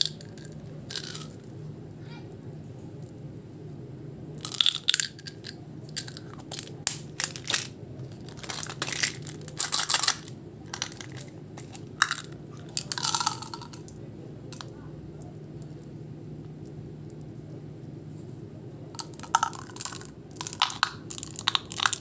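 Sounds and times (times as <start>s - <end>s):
hard candies rattling in plastic: 0.0s - 1.4s, 4.4s - 13.9s, 19.0s - 22.0s.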